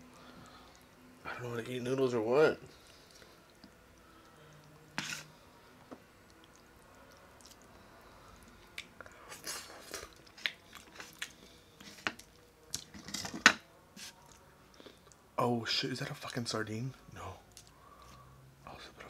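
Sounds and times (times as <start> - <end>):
person slurping and chewing noodles: 8.4 - 12.9.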